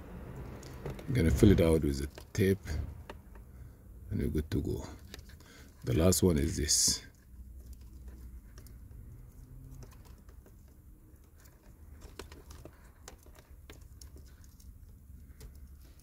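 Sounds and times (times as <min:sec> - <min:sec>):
hands handling wires and tools: 0:00.2 - 0:16.0.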